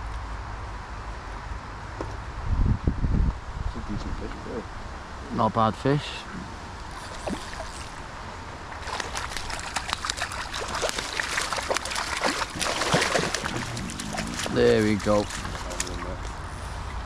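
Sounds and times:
fish splashing at water surface: 0:06.9 - 0:08.0, 0:08.7 - 0:16.2.

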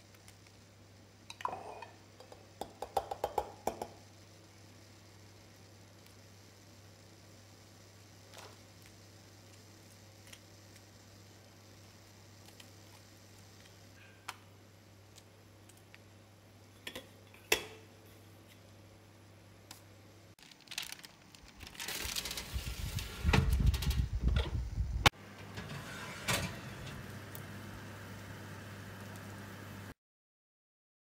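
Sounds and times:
oven grill humming: 0:00.0 - 0:20.4, 0:21.1 - 0:30.0.

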